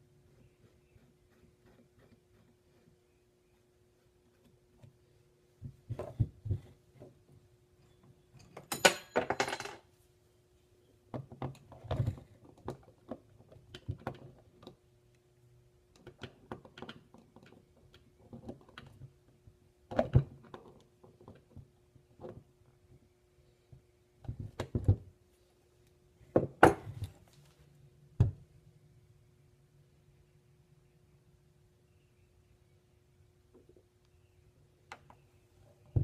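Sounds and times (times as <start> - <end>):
faint steady hum: 0.0 - 36.0.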